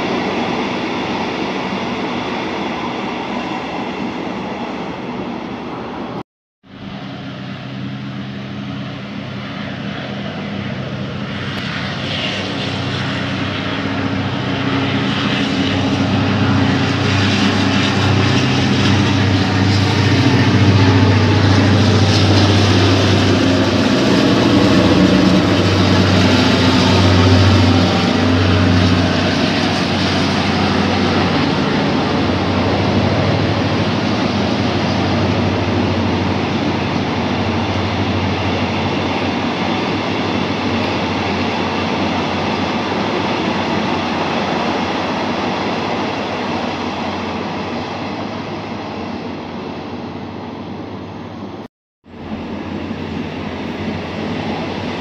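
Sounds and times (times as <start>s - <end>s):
diesel locomotive engine drone: 0.0s - 55.0s.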